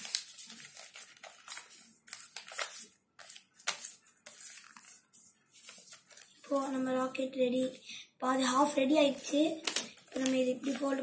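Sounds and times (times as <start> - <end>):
paper being folded: 0.0 - 6.8, 9.3 - 11.0.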